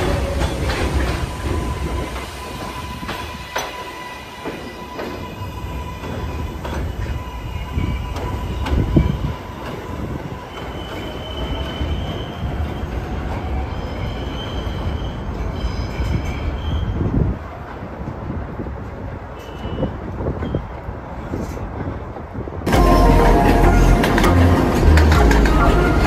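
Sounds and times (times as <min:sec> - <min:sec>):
high wheel squeals: 0:00.0 - 0:17.1
train rumbling on elevated track: 0:00.0 - 0:26.0
wheels clacking over rail joints: 0:22.8 - 0:26.0.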